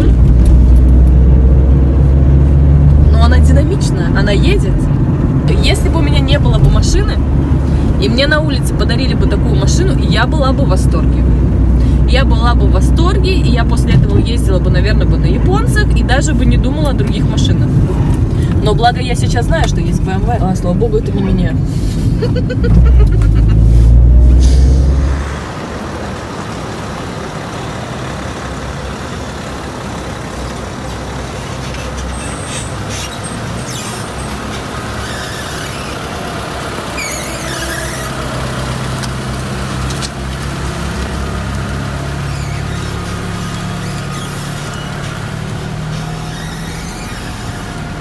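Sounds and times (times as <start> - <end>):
car engine and road rumble: 0.0 - 48.0
short squeals: 31.5 - 36.2, 36.9 - 38.3, 42.1 - 48.0.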